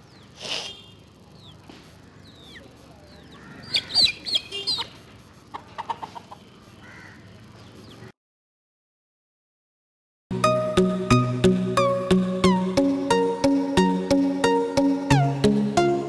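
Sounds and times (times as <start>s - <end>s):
chickens clucking and squawking: 2.2s - 6.5s.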